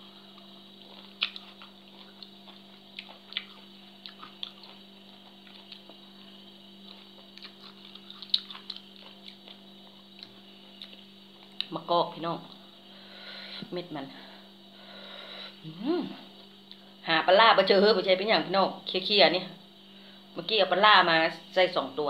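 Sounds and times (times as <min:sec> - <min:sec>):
low electrical hum: 0:00.0 - 0:22.0
person chewing: 0:00.3 - 0:11.7.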